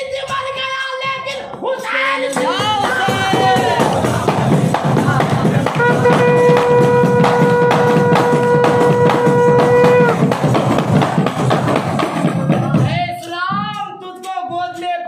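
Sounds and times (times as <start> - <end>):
continuous drumming: 0.0 - 15.0
held sung note: 5.7 - 10.2.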